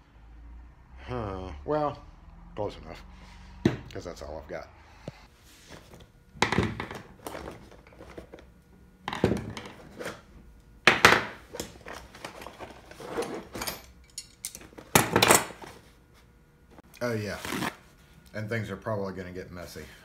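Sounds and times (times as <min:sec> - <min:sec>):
metal tools clattering on wood: 0:10.9 - 0:15.6.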